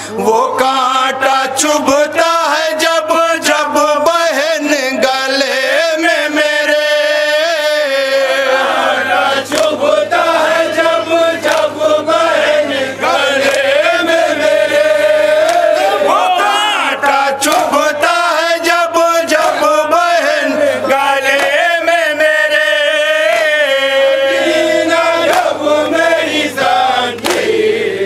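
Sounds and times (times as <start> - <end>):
lead reciter over microphone: 0.0 - 28.0
men chanting in unison: 0.0 - 28.0.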